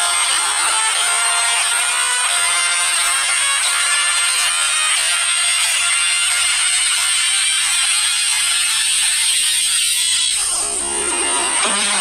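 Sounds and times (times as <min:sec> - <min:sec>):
hair clipper buzzing: 0:00.1 - 0:12.0.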